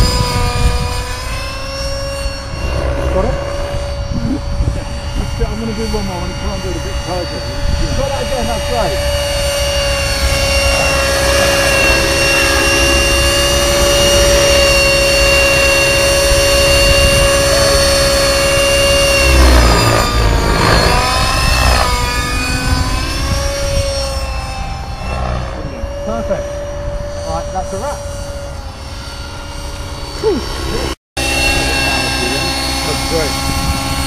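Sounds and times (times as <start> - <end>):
model helicopter whine: 0.0 - 34.0.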